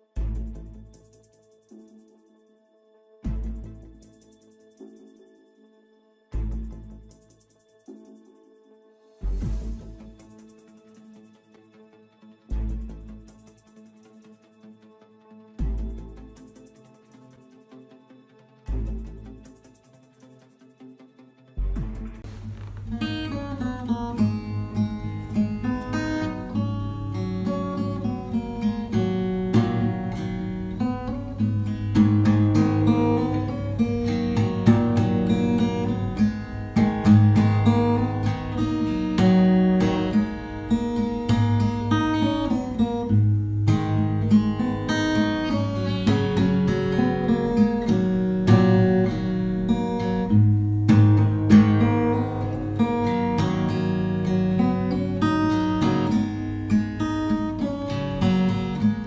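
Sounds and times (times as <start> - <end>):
acoustic guitar music: 21.6 - 59.0.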